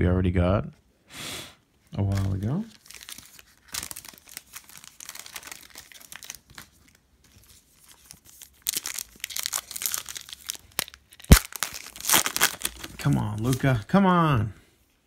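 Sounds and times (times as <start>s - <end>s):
foil pack crinkling: 2.0s - 13.8s
trading cards rustling: 2.0s - 14.0s.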